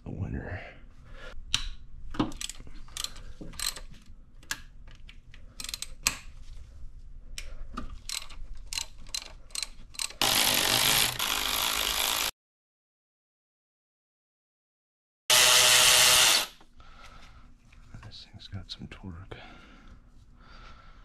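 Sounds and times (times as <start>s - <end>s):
socket ratchet clicking: 2.3s - 3.8s
cordless power tool running: 10.2s - 12.3s, 15.3s - 16.5s.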